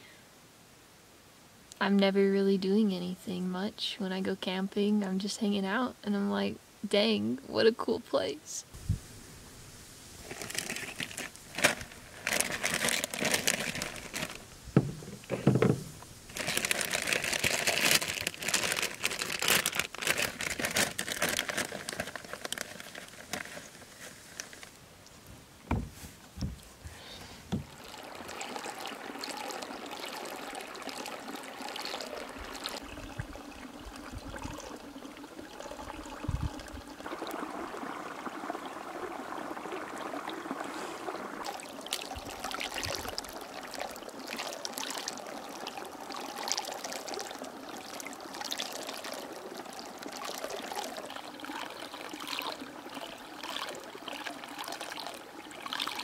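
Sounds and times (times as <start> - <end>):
water trickling and lapping: 8.7 - 56.0
rustling and crinkling: 9.8 - 27.8.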